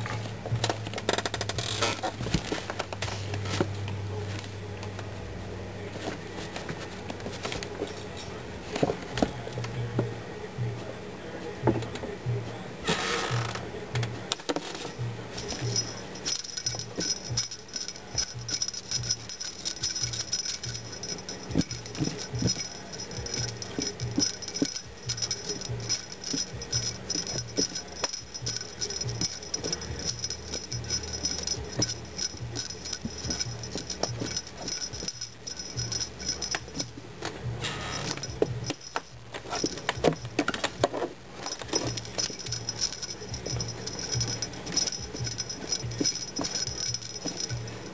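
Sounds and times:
jingle bell ball jingling: 0:14.6 - 0:47.9.

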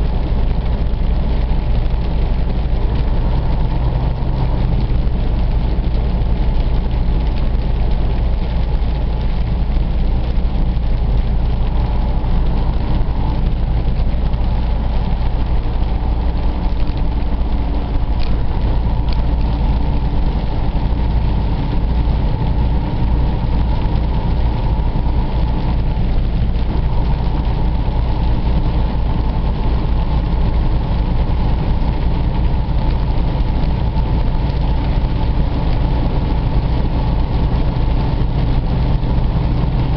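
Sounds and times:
road and rain noise: 0:00.0 - 0:39.9
truck engine hum: 0:00.0 - 0:39.9.

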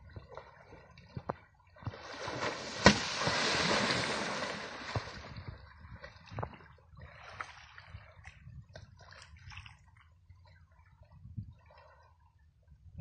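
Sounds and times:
elephant splashing in water: 0:01.9 - 0:06.2
sharp water slap: 0:02.2 - 0:05.3.

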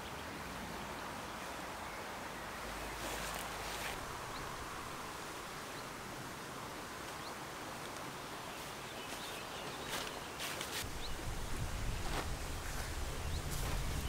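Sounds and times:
steady outdoor hiss: 0:00.0 - 0:14.0
brief rustle: 0:09.1 - 0:10.9.

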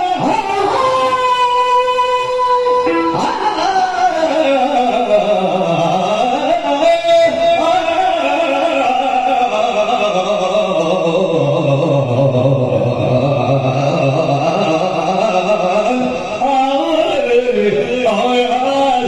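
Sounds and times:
person singing wavering melody: 0:02.4 - 0:05.0.

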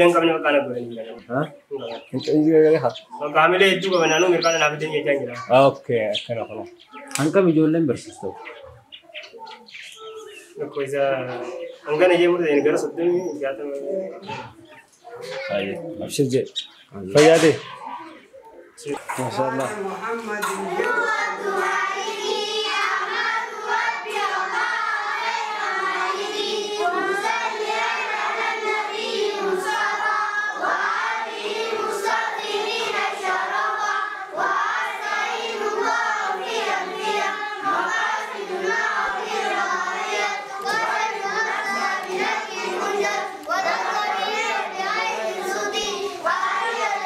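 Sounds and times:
children singing a chant: 0:17.4 - 0:47.0.

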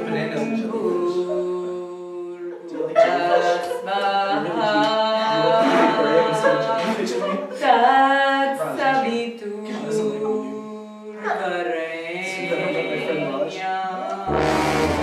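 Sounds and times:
person singing long sliding notes: 0:14.2 - 0:15.0.

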